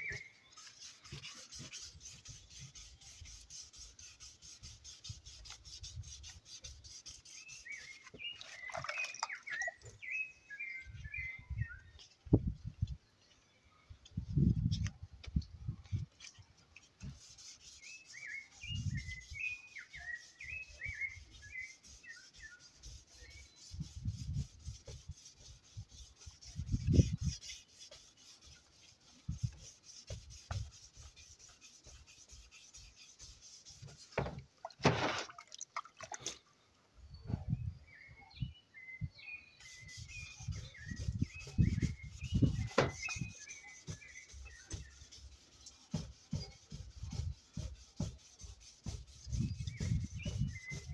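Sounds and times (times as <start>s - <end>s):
sandpaper rubbing on metal: 0.0s - 8.3s, 17.0s - 34.4s, 39.6s - 50.9s
birds chirping: 0.0s - 14.3s, 16.2s - 34.3s, 36.2s - 50.9s.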